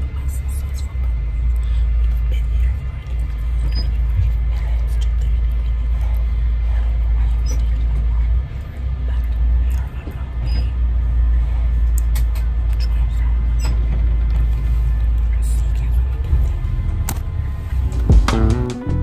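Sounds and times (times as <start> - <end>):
road rumble inside vehicle: 0.0 - 19.0.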